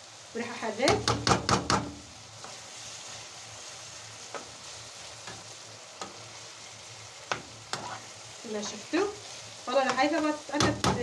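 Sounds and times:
meat and onion sizzling in a pan: 0.0s - 11.0s
spoon stirring clicks and scrapes: 7.3s - 8.1s.

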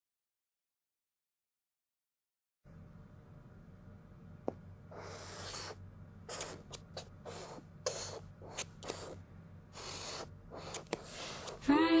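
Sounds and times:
marker pen scratching on paper: 4.9s - 11.6s.

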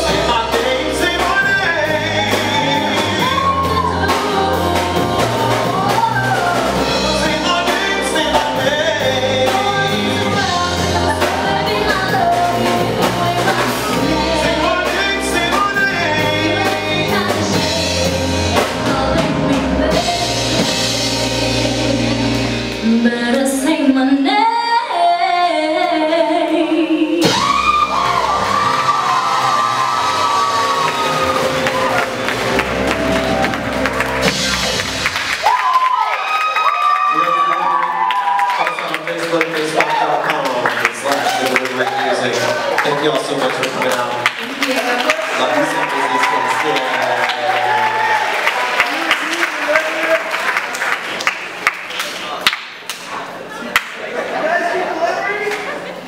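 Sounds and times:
electric bass: 0.0s - 23.7s, 27.2s - 35.6s
drum kit: 0.0s - 23.8s, 27.2s - 50.6s
woman singing: 0.0s - 27.9s
keyboard: 0.0s - 35.4s.

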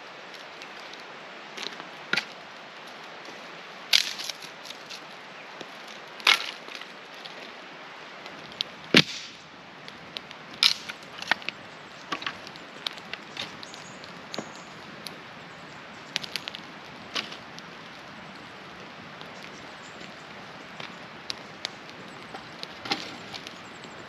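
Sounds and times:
hatchet chopping firewood: 8.9s - 9.4s, 10.5s - 11.5s.

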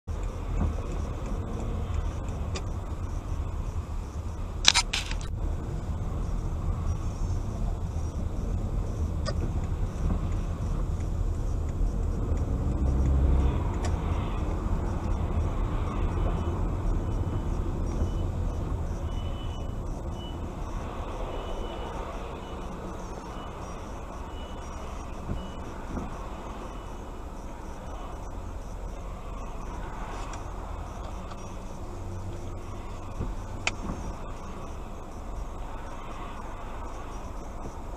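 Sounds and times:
car engine and tyres rumbling: 0.0s - 37.9s
short high beeps: 0.2s - 5.3s.

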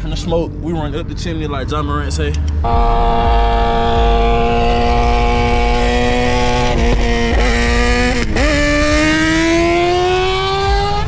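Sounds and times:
engines revving: 0.0s - 11.0s.

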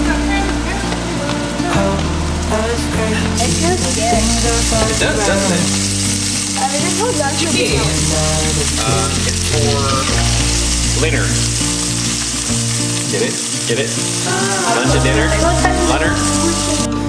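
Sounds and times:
person singing: 0.0s - 5.9s, 6.6s - 11.5s, 14.0s - 17.0s
background music with bass: 0.0s - 17.0s
chicken sizzling in a skillet: 3.4s - 16.8s.

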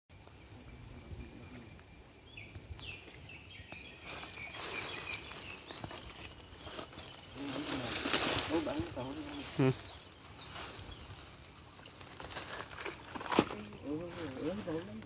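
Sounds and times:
small birds chirping: 0.2s - 15.0s.

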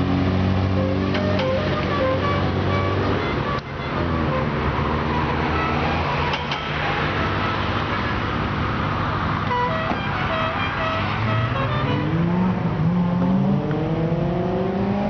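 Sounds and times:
car engine revving: 11.1s - 15.0s.

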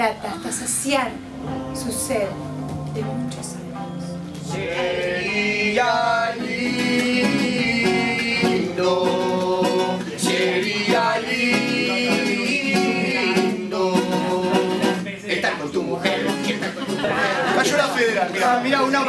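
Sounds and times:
acoustic guitar: 0.0s - 19.0s
person singing: 4.4s - 19.0s.

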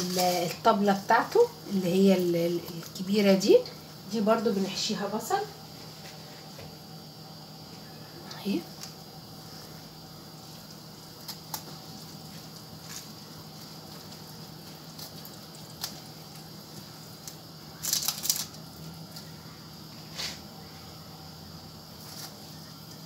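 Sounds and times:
crackling: 8.3s - 20.7s, 21.8s - 23.0s.

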